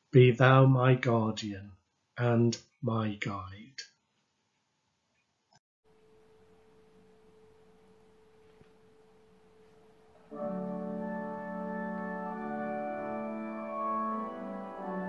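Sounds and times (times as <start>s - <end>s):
organ playing: 6.4s - 15.0s.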